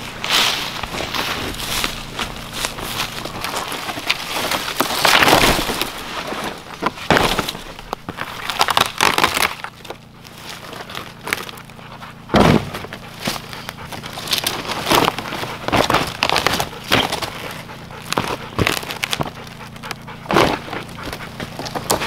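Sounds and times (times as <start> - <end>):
dry leaves and twigs crunching: 0.0 - 22.0
heavy thump: 12.3 - 12.9.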